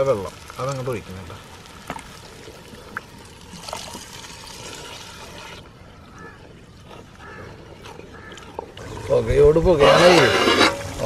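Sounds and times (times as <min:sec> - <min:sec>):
water pouring and sloshing into pot: 0:00.0 - 0:05.6.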